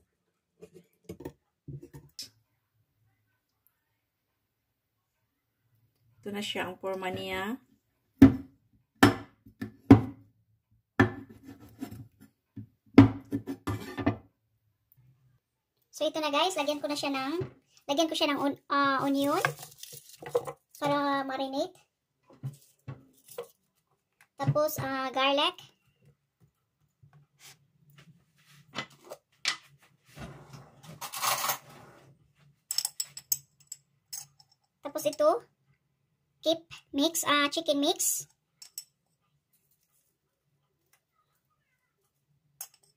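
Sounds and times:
kitchenware knocking and clattering: 0:08.2 - 0:10.3, 0:11.0 - 0:12.2, 0:13.0 - 0:14.3
rustling and scraping: 0:19.0 - 0:20.6, 0:22.3 - 0:23.9, 0:27.3 - 0:32.5.

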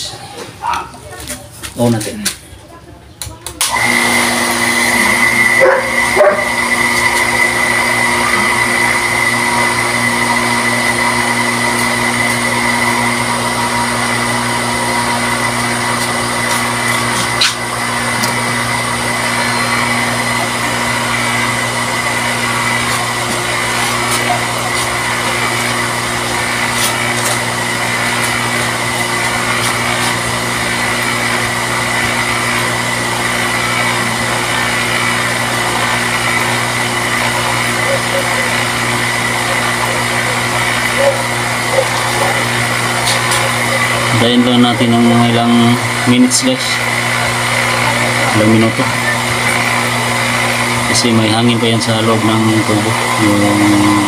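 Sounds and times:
water pump motor whining: 0:03.4 - 0:54.0.

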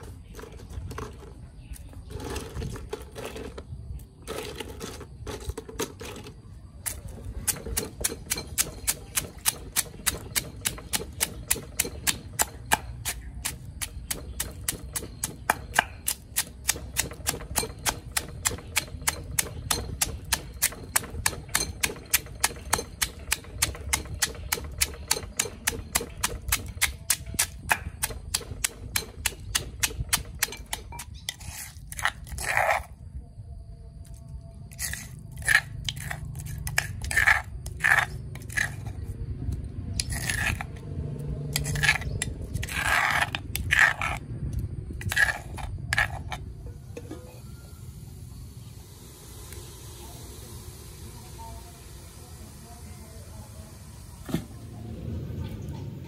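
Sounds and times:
pestle pounding in stone mortar: 0:06.8 - 0:32.8, 0:41.5 - 0:46.5.

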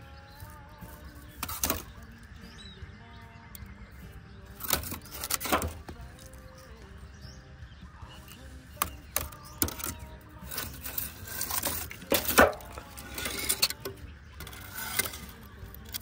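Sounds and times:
charcoal clinking against metal drum: 0:00.9 - 0:02.0, 0:04.6 - 0:06.7, 0:08.2 - 0:16.0.

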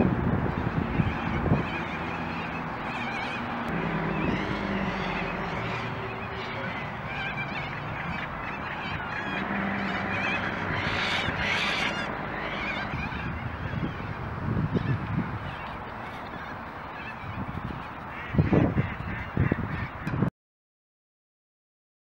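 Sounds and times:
birds calling and chattering: 0:00.4 - 0:20.1
harsh bird call: 0:00.8 - 0:14.2.

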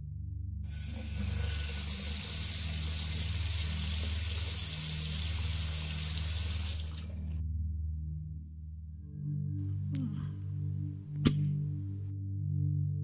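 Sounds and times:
tap water running into bucket: 0:00.7 - 0:07.4.

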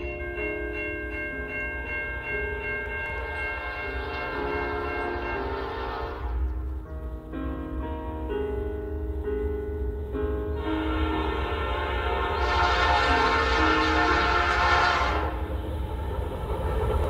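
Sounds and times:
train air horn chord: 0:03.2 - 0:06.6, 0:10.5 - 0:15.7.

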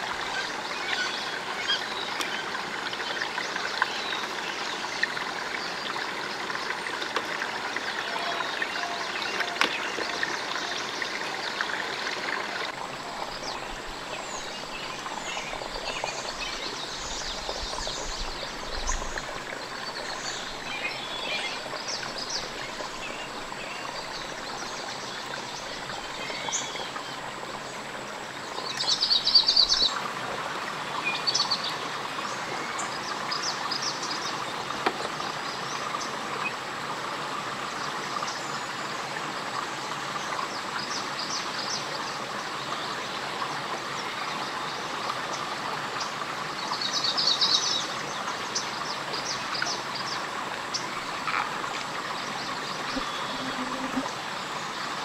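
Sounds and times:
steady forest hiss: 0:00.0 - 0:55.0
birds chirping: 0:48.5 - 0:54.2.

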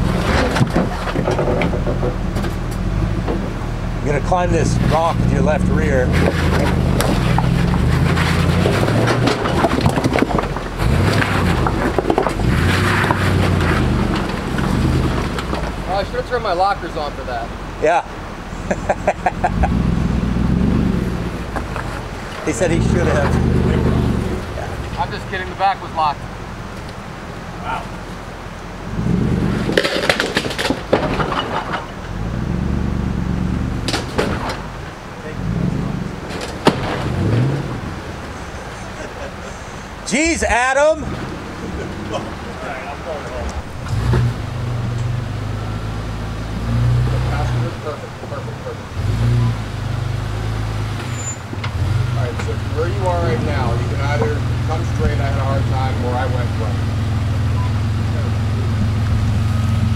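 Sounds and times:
tyres knocking and scraping stone: 0:00.0 - 0:03.6, 0:04.8 - 0:16.2, 0:21.4 - 0:23.4, 0:29.5 - 0:32.3, 0:33.8 - 0:35.0, 0:36.2 - 0:39.0
truck engine under load: 0:00.0 - 0:59.9.

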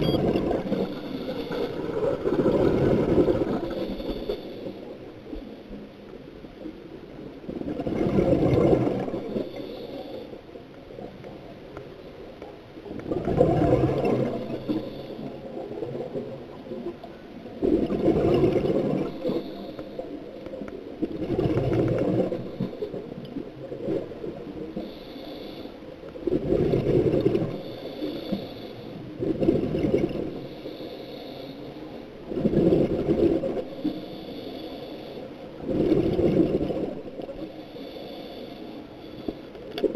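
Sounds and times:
faint hissing: 0:00.6 - 0:06.9, 0:09.0 - 0:10.7, 0:13.3 - 0:17.1, 0:22.4 - 0:39.8.

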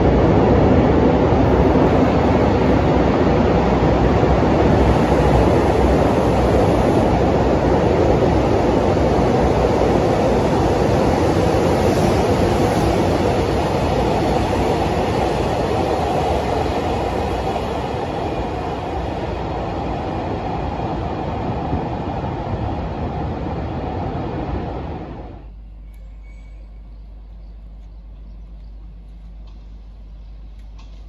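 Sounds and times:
train wheels rumbling on rail: 0:00.0 - 0:31.0
low steady hum: 0:21.8 - 0:31.0.

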